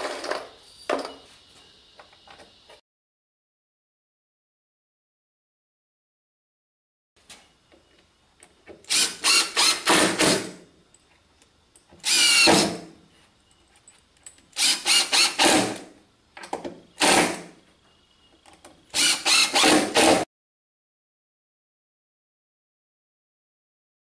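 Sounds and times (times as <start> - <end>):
cordless driver driving screws: 8.8 - 10.6, 12.0 - 12.8, 14.6 - 15.9, 18.9 - 20.2.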